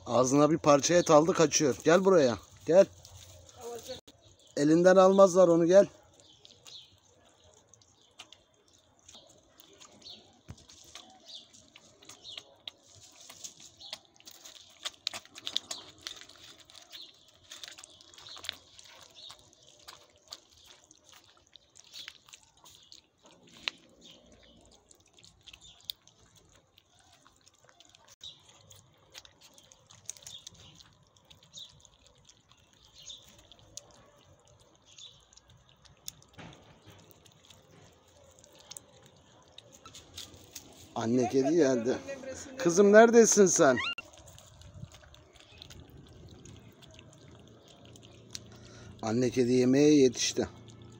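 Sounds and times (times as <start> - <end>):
kittens chewing and lapping: 0.0 - 50.9
small irregular clicks: 6.2 - 40.8, 43.9 - 49.0.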